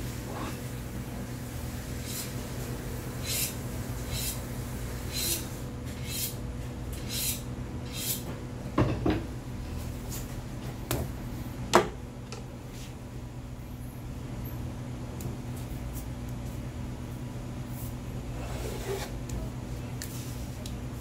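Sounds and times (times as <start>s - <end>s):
steady low hum: 0.0s - 21.0s
knife scraping strokes: 3.2s - 4.4s, 6.0s - 6.4s, 7.0s - 8.2s, 18.4s - 19.2s.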